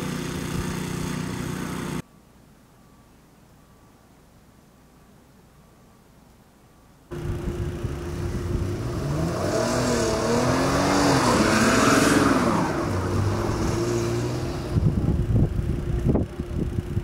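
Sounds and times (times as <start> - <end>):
car engine revving: 7.1 - 15.3
steady hum: 7.1 - 17.0.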